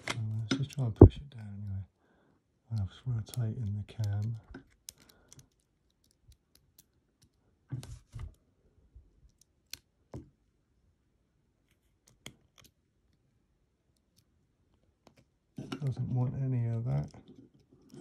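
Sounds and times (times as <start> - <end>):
metallic clicks and taps of lock picking: 2.7 - 7.4, 9.2 - 10.3.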